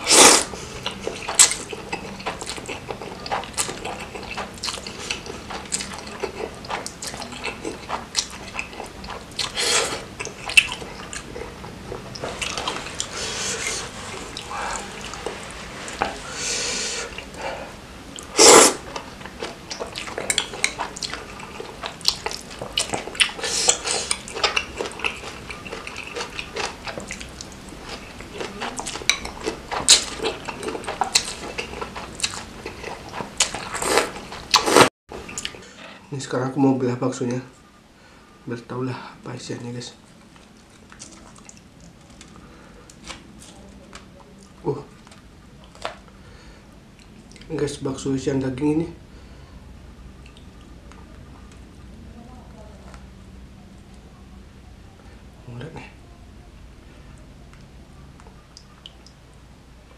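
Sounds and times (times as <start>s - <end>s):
person slurping and chewing noodles: 0.0s - 35.7s.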